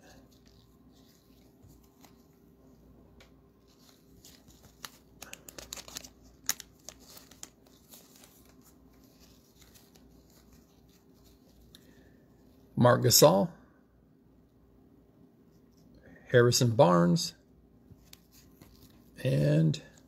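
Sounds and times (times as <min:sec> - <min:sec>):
cellophane wrapper crinkling: 0:00.0 - 0:02.5, 0:03.6 - 0:11.8.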